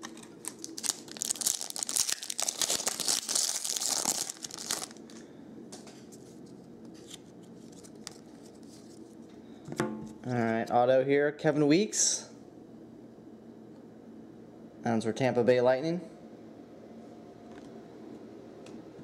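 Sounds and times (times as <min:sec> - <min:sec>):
wrapper tearing and crinkling: 0:00.0 - 0:05.2.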